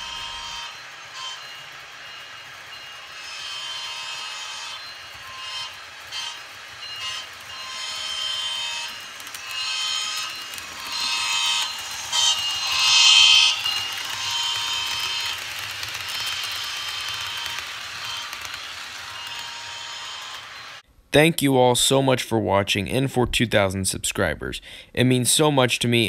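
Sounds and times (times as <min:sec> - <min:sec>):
model train horn blasts: 0:00.0 - 0:20.8.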